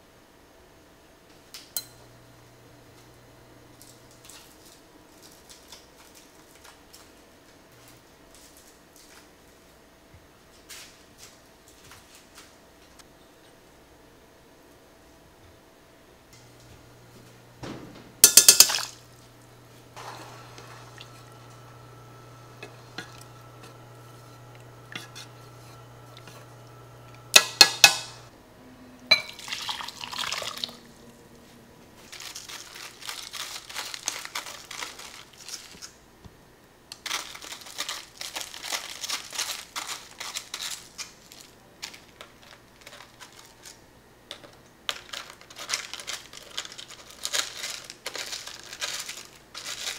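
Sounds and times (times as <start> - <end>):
crackling and rustling: 3.8 - 13.6, 31.4 - 49.9
hob humming: 16.3 - 29.3
saucepan clanking on hob: 18.2 - 18.9, 27.3 - 28.2
liquid pouring into bowl: 29.1 - 30.9.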